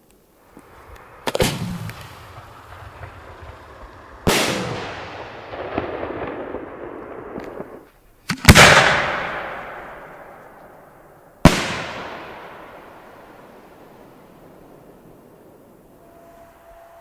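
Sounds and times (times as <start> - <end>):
firework shells bangs: 0.4 - 10.6.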